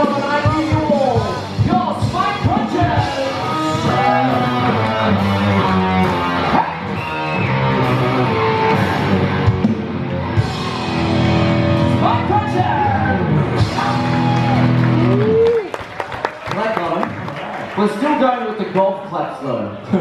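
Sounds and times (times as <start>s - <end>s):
drum kit: 0.0s - 15.2s
electric guitar chords: 2.5s - 15.2s.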